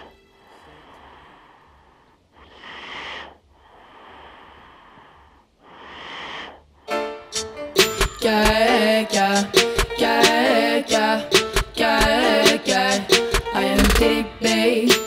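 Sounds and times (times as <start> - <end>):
heavy breathing: 0.0 - 7.0
music with sharp hits and held chord: 6.9 - 15.0.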